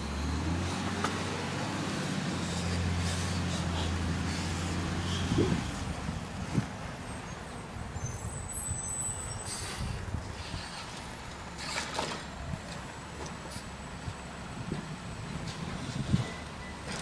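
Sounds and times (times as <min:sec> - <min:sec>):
distant garbage truck running: 0:00.0 - 0:17.0
air brake hisses: 0:09.3 - 0:10.9.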